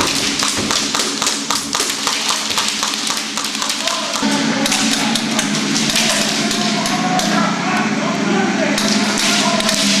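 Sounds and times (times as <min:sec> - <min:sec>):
pellets striking plywood: 0:00.0 - 0:06.7
low hum: 0:00.0 - 0:10.0.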